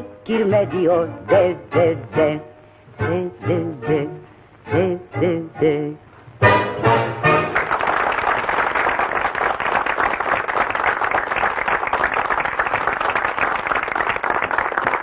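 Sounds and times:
audience applause: 7.4s - 15.0s.

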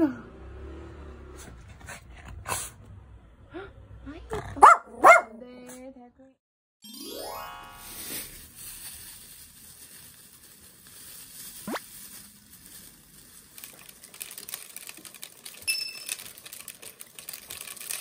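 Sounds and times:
rice grains pattering into bottle: 7.8s - 18.0s.

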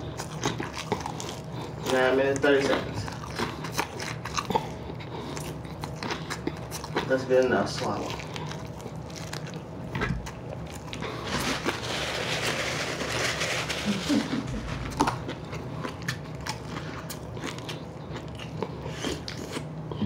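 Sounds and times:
chewing with crunches: 0.0s - 20.0s
paper napkin rustling: 11.1s - 15.2s.

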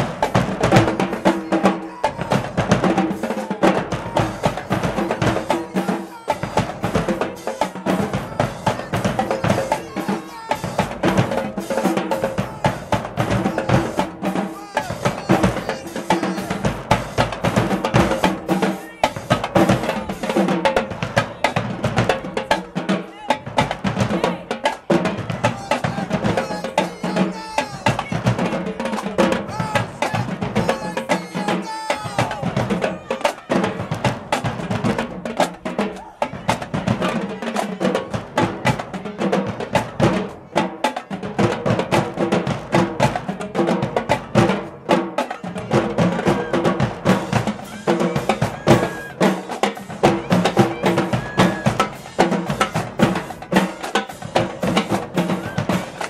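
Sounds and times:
voices: 0.0s - 39.4s, 45.2s - 56.0s
drumline playing cadence: 0.0s - 56.0s.

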